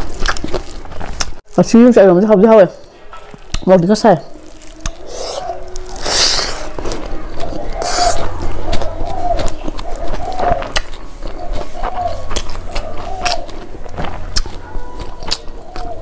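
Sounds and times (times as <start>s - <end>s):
close-miked chewing: 0.0s - 1.4s, 4.3s - 16.0s
wet mouth smacks: 10.6s - 10.9s.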